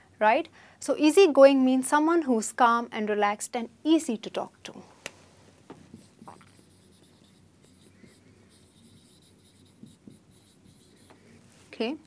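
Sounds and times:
marker writing on whiteboard: 5.7s - 11.4s.

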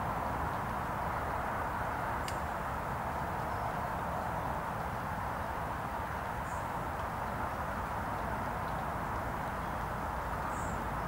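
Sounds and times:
faint sharp click: 2.2s - 2.5s.

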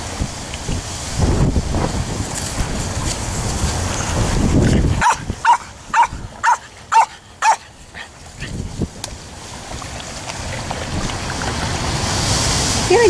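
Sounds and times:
wind on microphone: 0.0s - 13.0s
dog barking: 5.0s - 8.1s.

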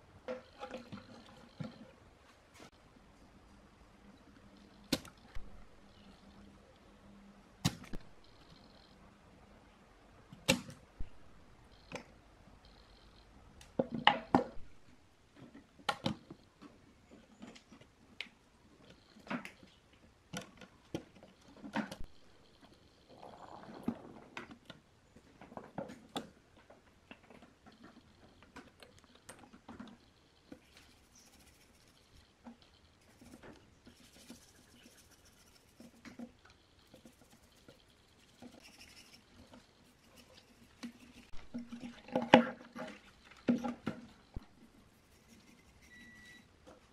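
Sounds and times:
faint soft brushing: 30.5s - 32.3s, 33.0s - 42.0s, 44.4s - 46.9s.

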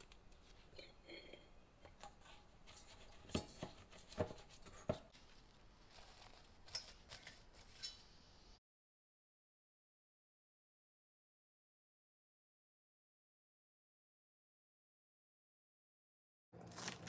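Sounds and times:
plastic wrap crinkling: 16.6s - 17.0s.

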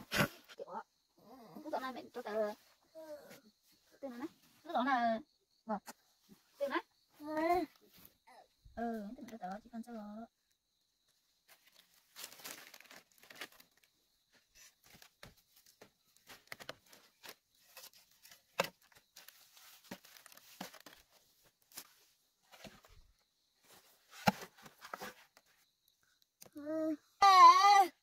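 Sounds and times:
dry leaves crumpling and tearing: 11.7s - 13.9s.

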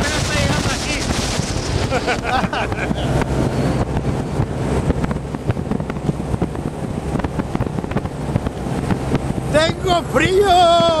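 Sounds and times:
outboard motor running: 0.0s - 11.0s
wind buffeting microphone: 0.0s - 11.0s.

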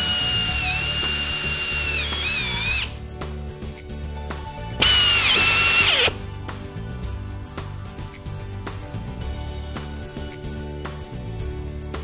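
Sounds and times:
power drill driving screw: 0.0s - 3.0s, 4.8s - 6.2s.

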